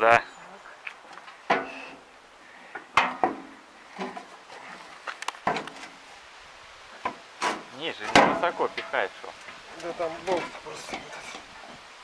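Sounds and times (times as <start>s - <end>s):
steel knocks and clanks: 3.0s - 4.3s, 7.0s - 9.0s.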